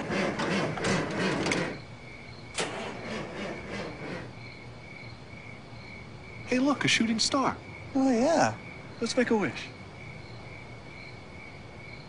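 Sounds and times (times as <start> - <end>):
engine cranking without starting: 0.0 - 1.9, 2.5 - 4.4
crickets chirping: 0.0 - 12.0.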